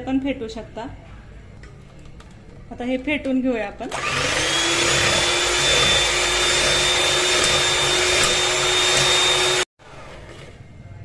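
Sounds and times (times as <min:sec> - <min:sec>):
electric hand mixer whipping cream: 0:03.9 - 0:09.7.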